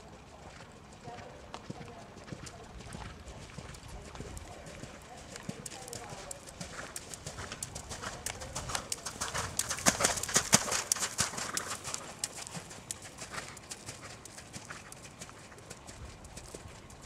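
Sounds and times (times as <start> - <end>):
horse hoofbeats cantering on soft ground: 0.0 - 17.0.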